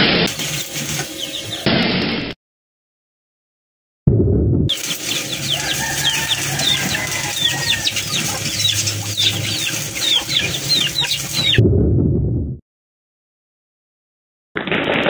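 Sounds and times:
welding arc crackling and hissing: 0.0s - 2.2s, 4.7s - 11.6s
chicken chirping: 0.4s - 1.7s, 4.7s - 11.6s.

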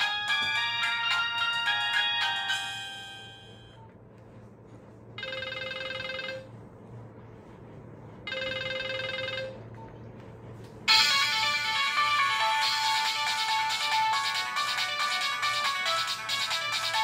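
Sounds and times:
buzzy trill ring tone: 0.0s - 3.8s, 5.2s - 6.6s, 8.2s - 9.6s, 10.9s - 17.0s
melodic ringtone: 0.0s - 3.8s, 5.2s - 6.5s, 8.3s - 9.6s, 10.9s - 17.0s.

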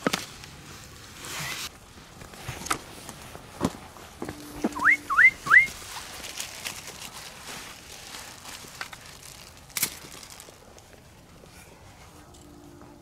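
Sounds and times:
rustling: 0.0s - 12.9s
person whistling rising whistles: 4.7s - 5.8s.

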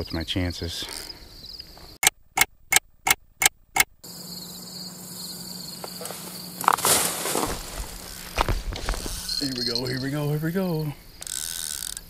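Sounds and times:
crickets and insects chirring: 0.0s - 2.0s, 4.0s - 12.0s
fishing reel rattling: 9.0s - 10.2s, 11.2s - 12.0s
fishing reel clicker ticking: 11.2s - 12.0s.

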